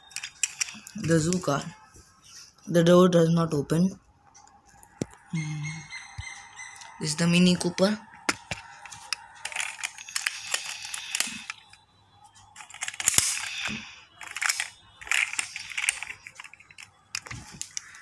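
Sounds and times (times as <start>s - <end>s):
toy car handled clicks and rustling: 0.0s - 1.6s, 8.3s - 11.8s, 12.6s - 18.0s.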